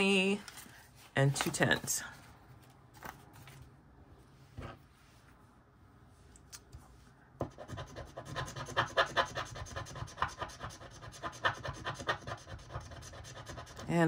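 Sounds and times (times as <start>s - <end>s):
scratch-off paper scraping: 7.4s - 14.0s.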